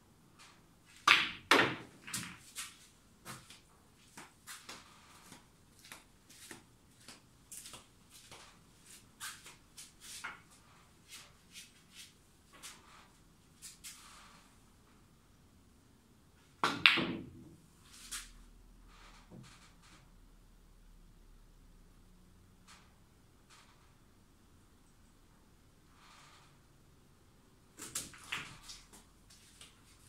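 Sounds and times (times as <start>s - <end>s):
snooker balls clicking: 0.9s - 2.4s, 16.6s - 17.4s.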